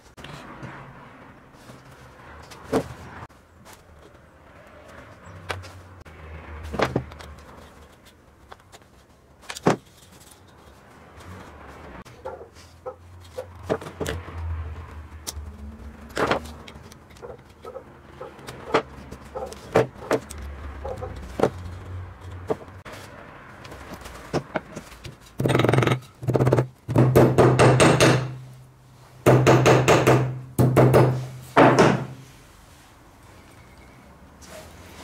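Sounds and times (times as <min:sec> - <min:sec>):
hammer knocking on vise anvil: 0:25.4 - 0:28.4, 0:29.3 - 0:32.2.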